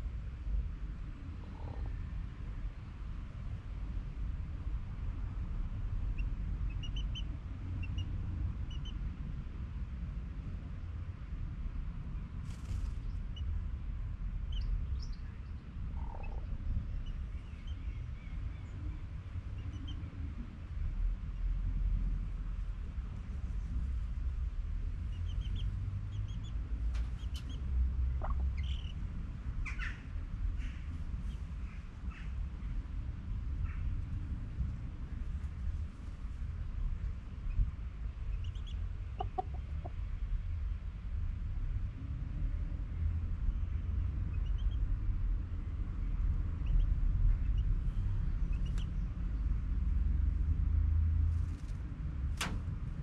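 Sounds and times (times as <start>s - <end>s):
steady low rumble: 0.0s - 53.0s
chickens chirping and squawking: 27.0s - 29.0s, 38.4s - 40.0s
sharp click: 52.4s - 52.7s.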